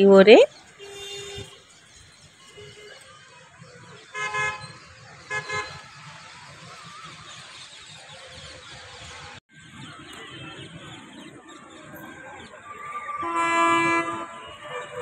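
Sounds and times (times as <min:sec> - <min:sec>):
traffic noise: 0:00.0 - 0:15.0
vehicle horn honking: 0:00.8 - 0:01.6, 0:04.1 - 0:05.8, 0:13.1 - 0:15.0.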